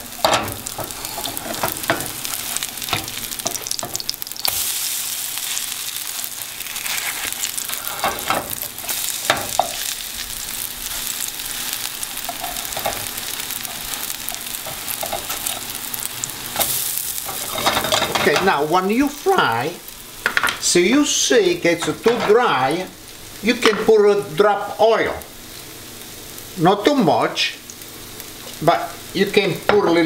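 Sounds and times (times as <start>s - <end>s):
pancakes sizzling in hot oil: 0.0s - 30.0s
spatula scraping and tapping: 13.7s - 15.7s.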